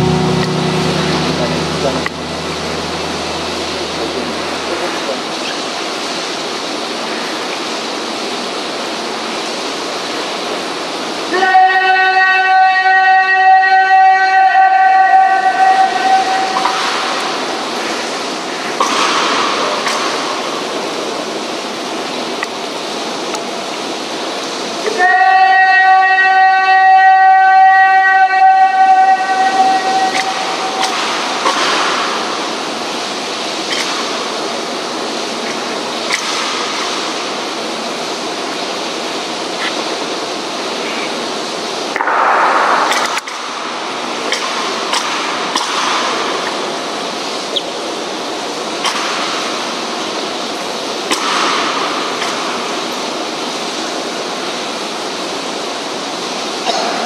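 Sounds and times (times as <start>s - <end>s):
rush of noise: 0.0s - 11.3s, 29.1s - 57.0s
rain hiss: 0.0s - 57.0s
person shouting drill command: 11.3s - 16.6s, 24.9s - 30.8s.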